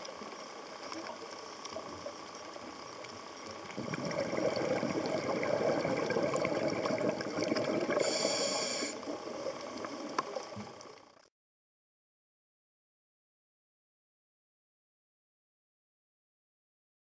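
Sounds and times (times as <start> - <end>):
faint clicks: 0.0 - 3.8, 8.8 - 11.3
underwater water noise: 0.0 - 11.3
regulator exhaust bubbles: 3.7 - 8.1
high hiss: 7.9 - 9.1.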